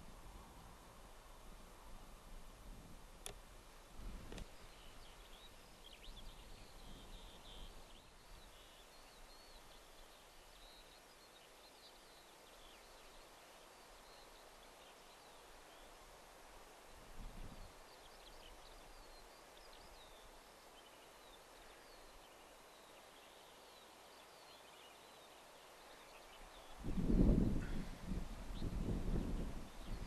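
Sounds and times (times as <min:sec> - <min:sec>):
open-air background noise: 0:00.0 - 0:30.0
faint birdsong: 0:04.0 - 0:30.0.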